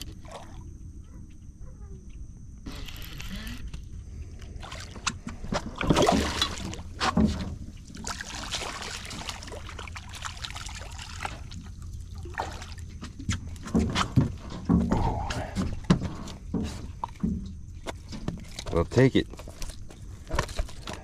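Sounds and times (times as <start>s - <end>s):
water splashing: 4.5s - 13.3s.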